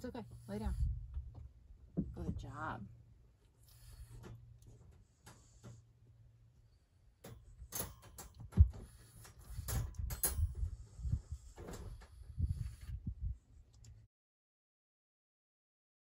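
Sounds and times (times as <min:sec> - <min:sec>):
wire dog crate rattling: 0:07.2 - 0:12.2.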